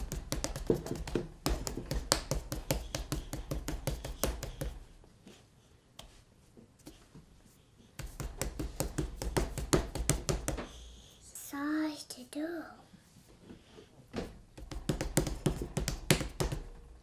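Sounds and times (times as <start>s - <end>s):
hands slapping dough: 0.0s - 4.9s, 8.0s - 10.8s, 14.5s - 16.8s.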